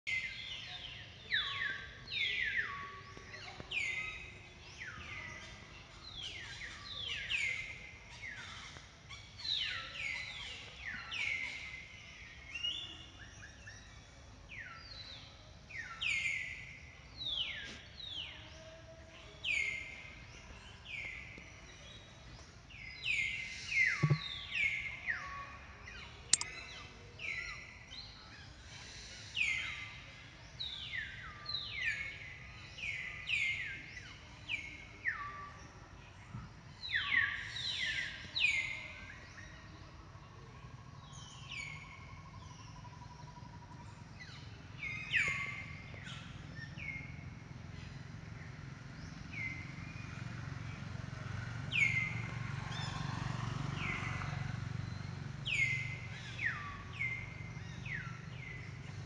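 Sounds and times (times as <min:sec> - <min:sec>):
birds calling: 0:23.0 - 0:25.2.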